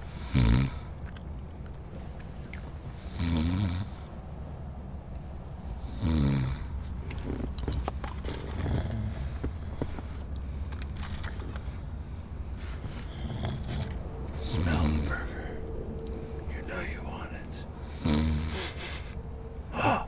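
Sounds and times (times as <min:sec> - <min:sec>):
steady low hum: 0:00.0 - 0:20.0
person snoring: 0:00.1 - 0:00.9, 0:13.1 - 0:15.6, 0:17.8 - 0:20.0.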